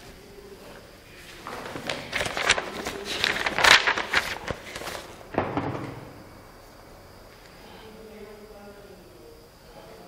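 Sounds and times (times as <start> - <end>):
paper rustling: 0.7 - 5.3.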